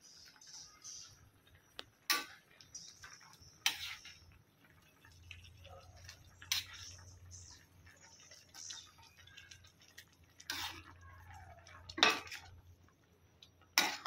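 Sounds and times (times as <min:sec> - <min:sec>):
metal ladle scraping a wok: 0:03.4 - 0:04.3, 0:06.4 - 0:07.6, 0:10.4 - 0:11.0.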